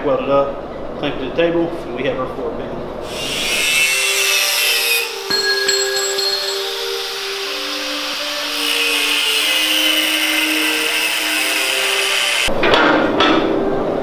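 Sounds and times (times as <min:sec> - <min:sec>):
angle grinder cutting steel: 0:03.0 - 0:12.5.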